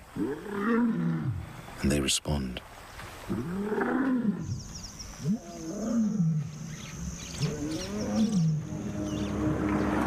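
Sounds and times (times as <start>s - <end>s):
lions roaring: 5.2s - 10.0s.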